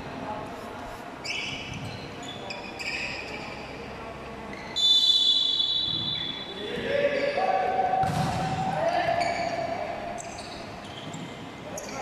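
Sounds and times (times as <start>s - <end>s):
basketball shoes squeaking: 1.2s - 3.8s, 9.0s - 12.0s
referee's whistle blast: 4.8s - 6.6s.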